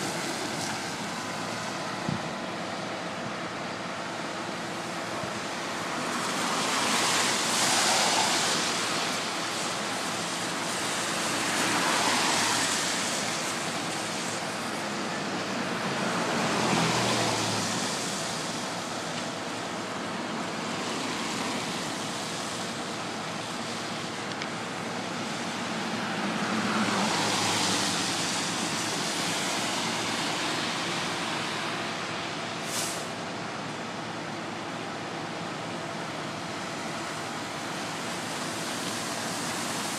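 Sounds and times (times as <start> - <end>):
car engines passing: 0.0 - 39.9
tyres hissing on wet street: 0.0 - 39.9.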